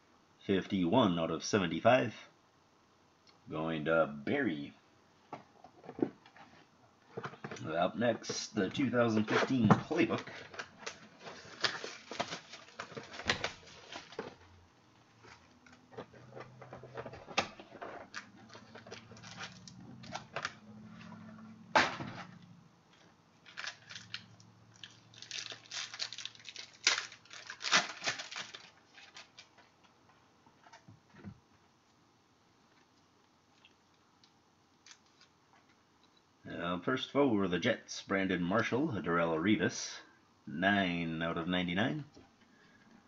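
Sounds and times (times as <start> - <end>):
cards rustling: 9.0 - 14.5, 15.1 - 29.9
cardboard and plastic wrapper tearing: 9.2 - 14.4, 15.3 - 20.6, 23.4 - 29.8.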